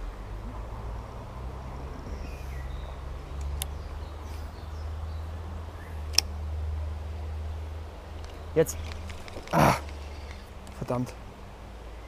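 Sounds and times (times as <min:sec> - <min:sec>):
stream rumble: 0:00.0 - 0:12.0
sharp clicks: 0:03.4 - 0:03.8, 0:06.1 - 0:06.3, 0:08.2 - 0:10.8
faint bird calls: 0:08.3 - 0:10.6.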